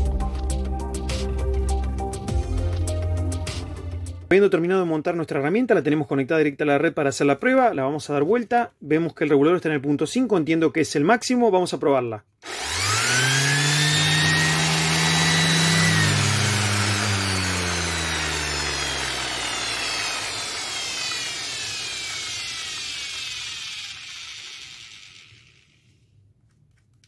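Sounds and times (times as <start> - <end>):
orbit sander running: 12.4 - 25.9
sander spinning down whine: 12.4 - 25.9.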